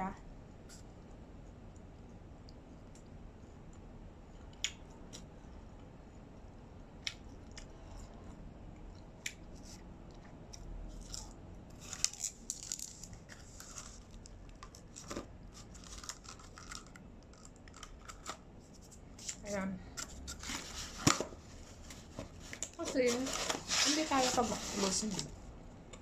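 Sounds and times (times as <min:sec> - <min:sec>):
chewing crispy crust: 0:08.8 - 0:18.4.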